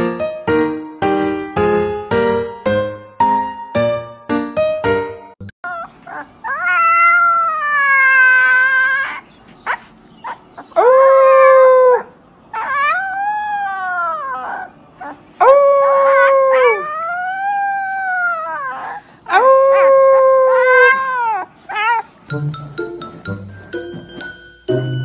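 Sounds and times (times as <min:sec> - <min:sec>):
puppy howling: 0:05.7 - 0:09.2, 0:10.2 - 0:22.1.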